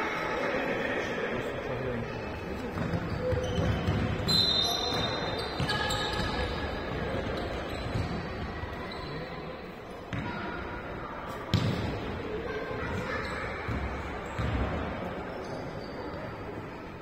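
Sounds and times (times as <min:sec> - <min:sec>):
sports hall din: 0:00.0 - 0:17.0.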